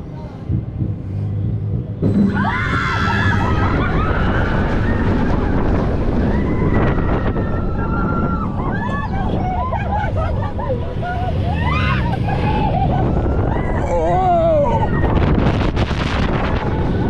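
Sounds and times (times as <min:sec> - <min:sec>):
rumbling roller coaster track: 0:00.0 - 0:17.0
rush of wind: 0:00.0 - 0:17.0
riders screaming: 0:11.0 - 0:15.2.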